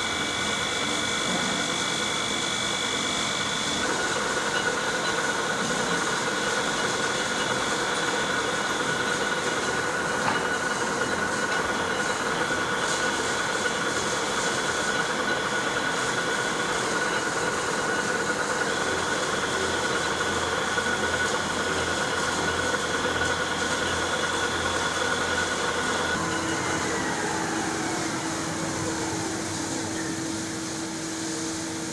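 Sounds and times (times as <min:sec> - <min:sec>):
high mechanical whine: 0:00.0 - 0:31.9
lathe drive humming: 0:00.0 - 0:31.9.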